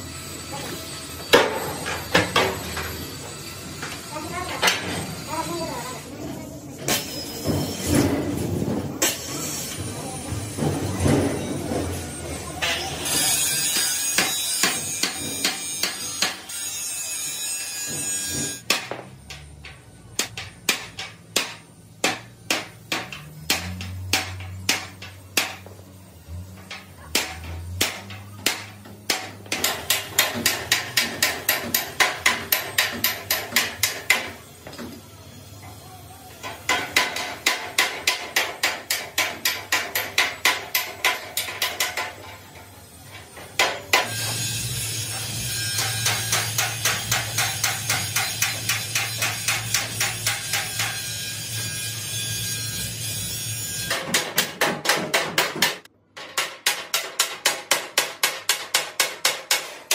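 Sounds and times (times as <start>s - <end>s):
hammer beating steel: 0.2s - 6.1s, 6.8s - 34.9s, 36.4s - 59.9s.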